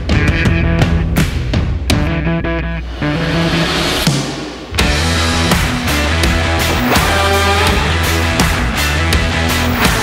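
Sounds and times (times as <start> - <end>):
rock music with guitar: 0.0 - 10.0
sharp drum strikes: 4.0 - 8.6.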